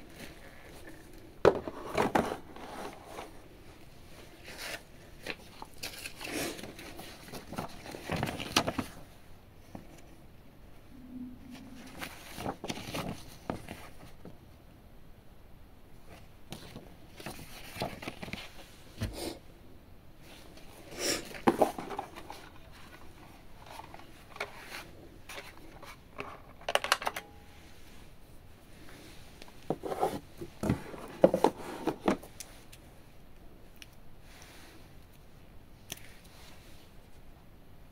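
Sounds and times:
paper and cardboard rustling: 0:00.0 - 0:03.5, 0:04.2 - 0:09.1, 0:11.5 - 0:14.3, 0:16.1 - 0:19.2, 0:20.4 - 0:26.6, 0:29.7 - 0:32.7.

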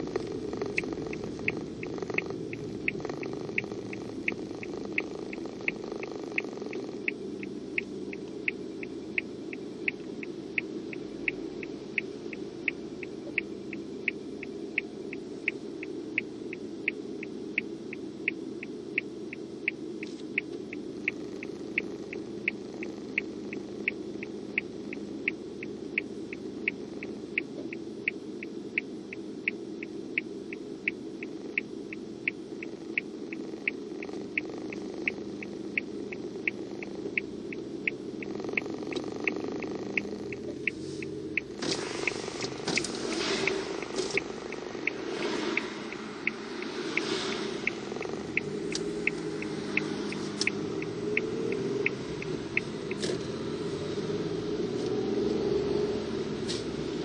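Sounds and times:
idling car cabin hum: 0:00.0 - 0:57.0
turn signal ticking: 0:00.0 - 0:57.0.

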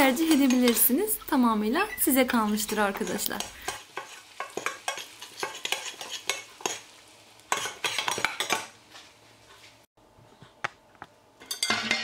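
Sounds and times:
metal spoon scraping saucepan: 0:00.0 - 0:06.8
butter sizzling: 0:00.0 - 0:09.2.

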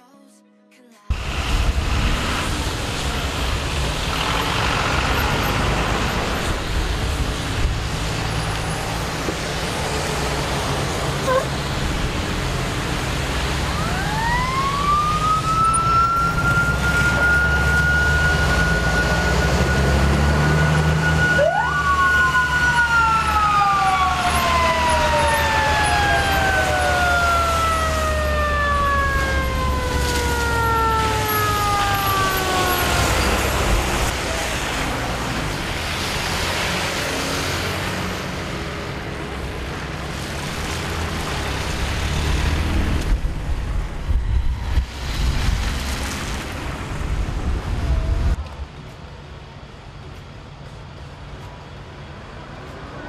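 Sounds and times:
heavy truck engine rumbling: 0:01.1 - 0:53.0
fire engine siren: 0:13.2 - 0:38.2
second siren tone sweeping: 0:13.7 - 0:34.1.

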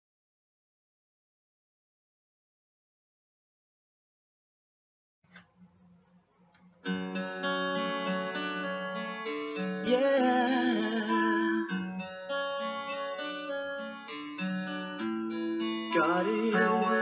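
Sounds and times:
acoustic guitar strumming: 0:06.8 - 0:17.0
wavering melody line: 0:15.8 - 0:17.0.

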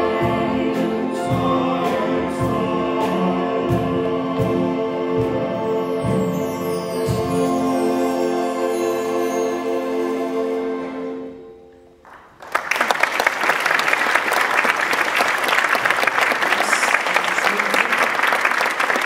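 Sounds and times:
choir and band chord: 0:00.0 - 0:11.4
audience applause: 0:12.1 - 0:19.0.

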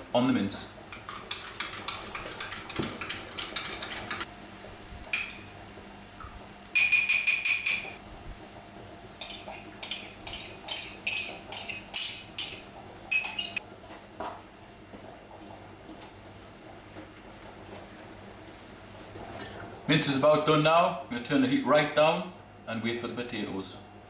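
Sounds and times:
spoon clinking and scraping mug: 0:09.2 - 0:13.6.

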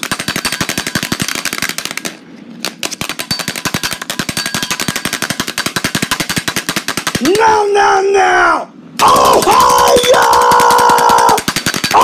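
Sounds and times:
fast rattle of sharp clicks: 0:00.0 - 0:07.4, 0:09.0 - 0:12.0.

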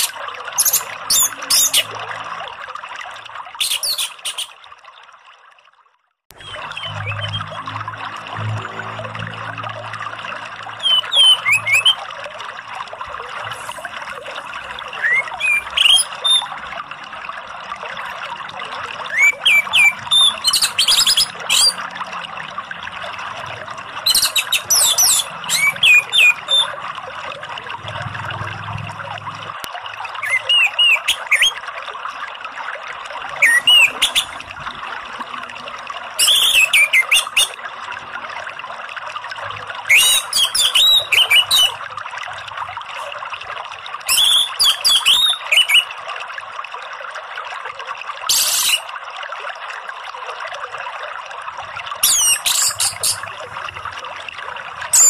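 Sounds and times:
running water rushing: 0:00.0 - 0:05.7, 0:06.3 - 0:55.0
thrush singing whistles and chatter: 0:10.8 - 0:12.0, 0:15.0 - 0:16.5, 0:19.1 - 0:21.8, 0:24.1 - 0:26.7, 0:30.2 - 0:31.6, 0:33.4 - 0:34.3, 0:39.9 - 0:41.8, 0:44.1 - 0:45.9.

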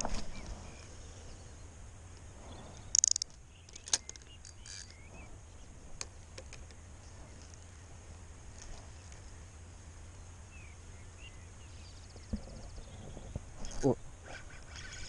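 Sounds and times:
low steady rumble: 0:00.0 - 0:15.0
fishing reel clicks: 0:02.9 - 0:05.0.

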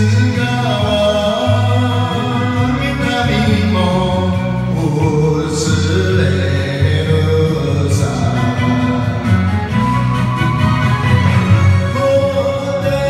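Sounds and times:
man singing into a microphone: 0:00.0 - 0:09.8, 0:11.7 - 0:13.0
karaoke backing track: 0:00.0 - 0:13.0.

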